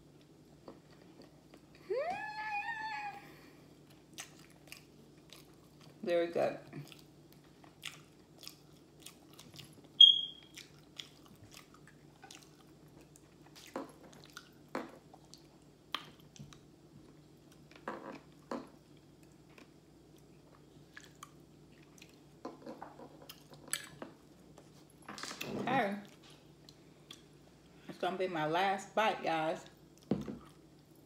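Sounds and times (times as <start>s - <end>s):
faint low hum: 0.0s - 31.0s
chewing and crunching: 3.8s - 6.0s, 6.6s - 27.4s
high-pitched squeak: 10.0s - 10.4s.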